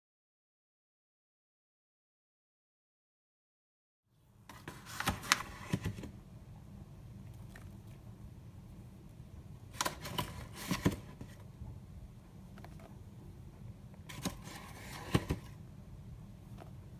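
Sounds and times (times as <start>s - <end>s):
low steady hum: 4.1s - 16.9s.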